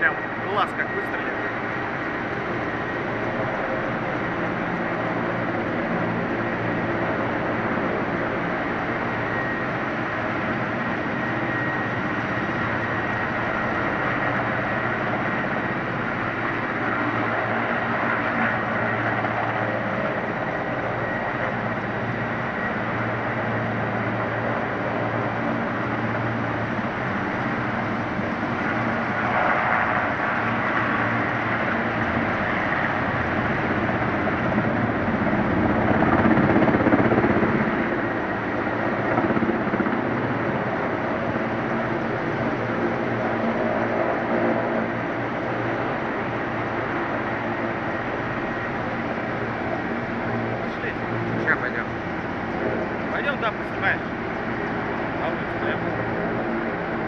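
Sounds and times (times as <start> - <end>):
helicopter engines and rotor: 0.0 - 57.0.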